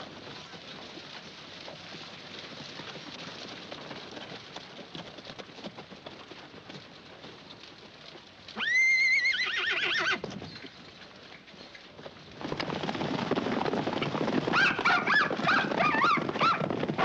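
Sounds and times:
horse hooves clopping on dirt: 0.0s - 17.0s
horse whinnying: 8.6s - 10.2s.

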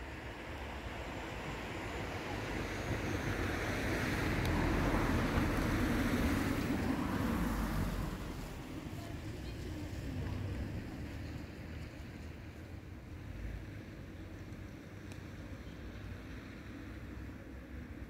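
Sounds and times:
motor vehicle passing by: 2.2s - 12.5s.

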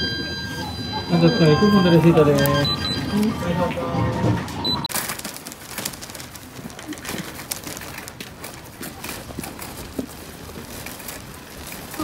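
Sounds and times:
shopping cart rattling on paving: 4.9s - 12.0s.

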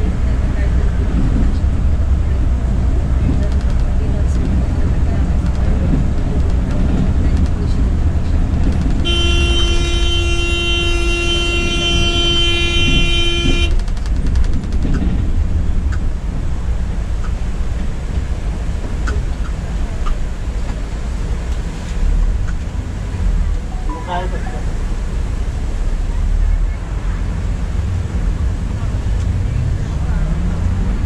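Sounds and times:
bus engine and road rumble: 0.0s - 31.0s
vehicle horn blast: 9.0s - 13.8s.

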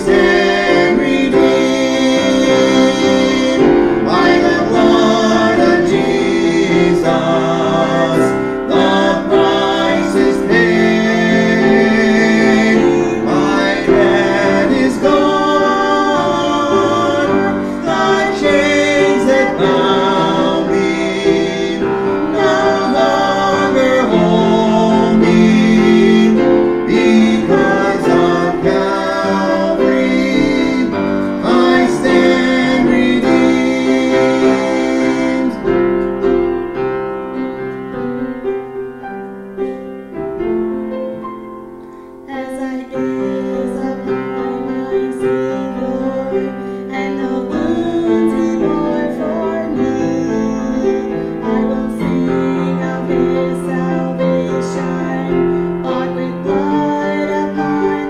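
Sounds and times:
man and woman singing gospel: 0.0s - 36.4s, 42.2s - 58.0s
piano: 0.0s - 58.0s.

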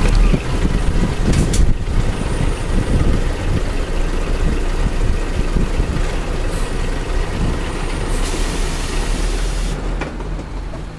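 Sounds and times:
diesel engine at low revs: 0.0s - 10.9s
compressed air hiss: 8.1s - 9.8s.

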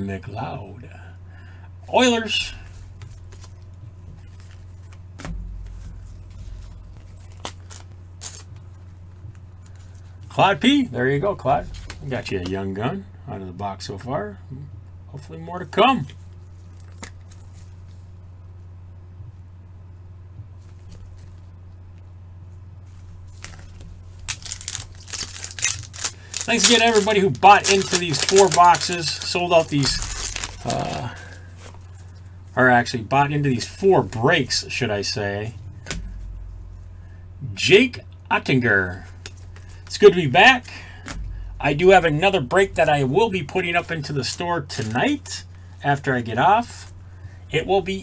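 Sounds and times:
steady low hum: 0.0s - 48.0s
plastic wrapper crinkling and tearing: 6.4s - 8.6s, 23.3s - 31.9s.

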